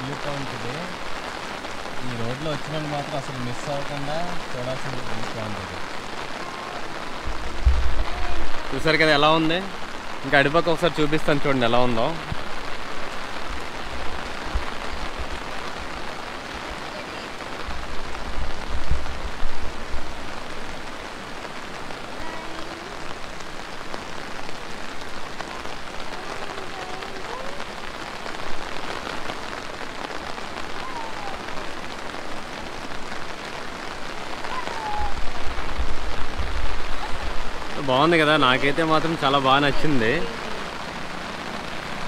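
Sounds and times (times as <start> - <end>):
heavy rain: 0.0 - 42.0
low rumble on microphone: 7.3 - 8.3.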